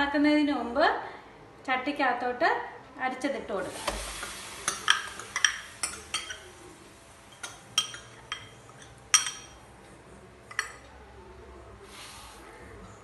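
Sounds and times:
spoon clinking against metal: 0:04.7 - 0:06.5, 0:07.3 - 0:09.7, 0:10.5 - 0:10.8.

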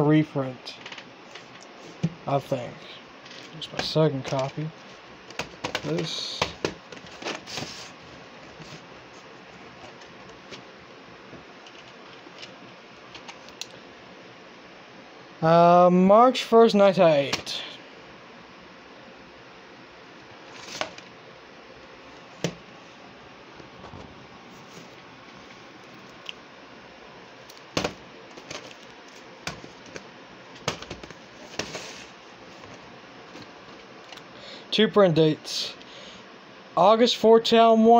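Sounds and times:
tape case rustling: 0:03.3 - 0:10.7, 0:11.3 - 0:13.7, 0:20.4 - 0:21.1, 0:27.5 - 0:34.2
plastic tape cases clacking: 0:05.3 - 0:07.6, 0:27.5 - 0:31.8.

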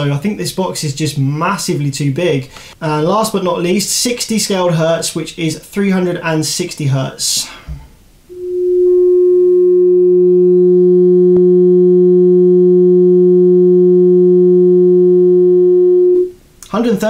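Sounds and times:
lower steady tone: 0:08.3 - 0:16.4
sine test tone: 0:08.3 - 0:16.4.

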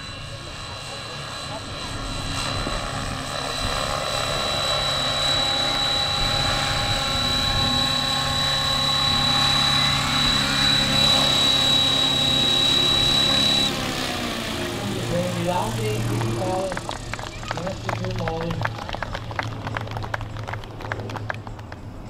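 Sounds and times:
model helicopter motor whine: 0:00.0 - 0:19.0
rotor whirring: 0:03.3 - 0:17.8.

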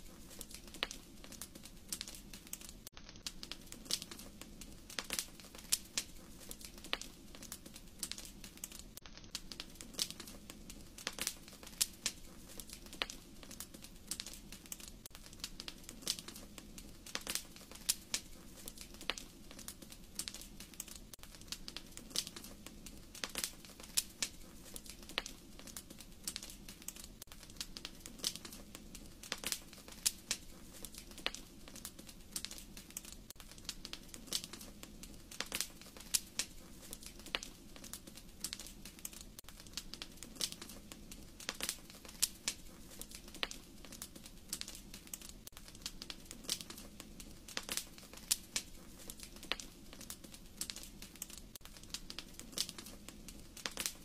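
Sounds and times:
wood fire crackling: 0:00.0 - 0:54.0.

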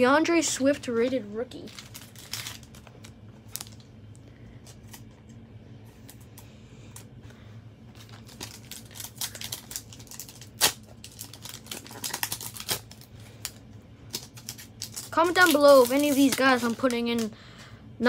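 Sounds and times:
foil wrapper crinkling: 0:01.5 - 0:03.9, 0:07.9 - 0:17.4
cards being handled: 0:07.9 - 0:17.3.

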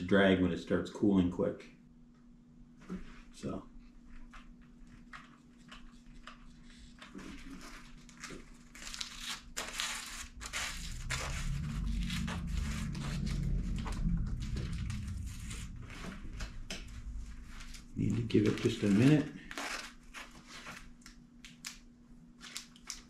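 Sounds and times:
low rumble: 0:09.5 - 0:19.2.

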